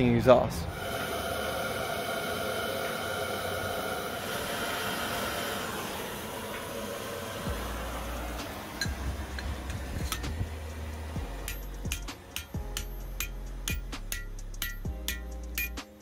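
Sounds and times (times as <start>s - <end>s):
propane torch hissing: 0.6s - 13.8s
low rumble: 6.0s - 12.0s.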